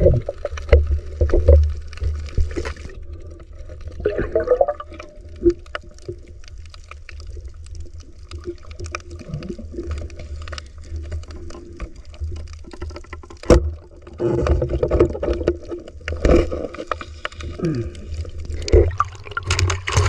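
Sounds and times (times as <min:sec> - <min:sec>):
underwater low rumble: 0:00.0 - 0:20.0
crackling clicks: 0:00.1 - 0:20.0
water rushing: 0:17.4 - 0:20.0.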